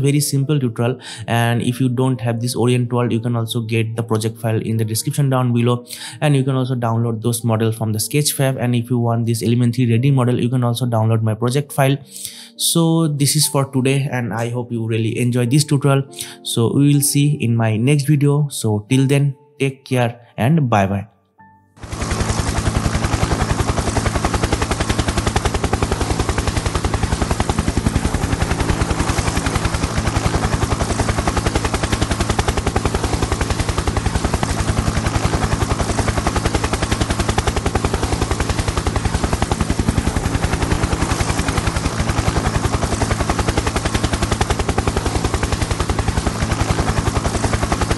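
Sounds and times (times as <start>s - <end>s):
helicopter rotor blades chopping: 21.8s - 47.9s.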